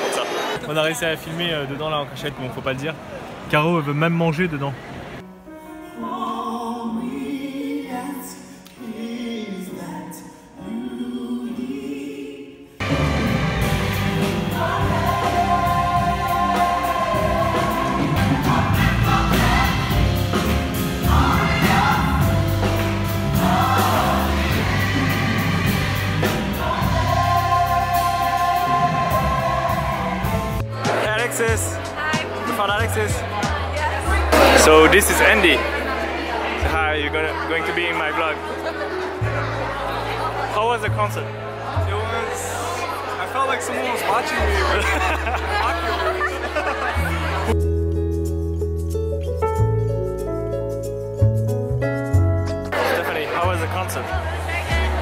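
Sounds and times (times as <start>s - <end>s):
piano: 5.2s - 55.0s
large choir singing: 6.1s - 47.5s, 52.7s - 55.0s
drums: 12.8s - 36.0s.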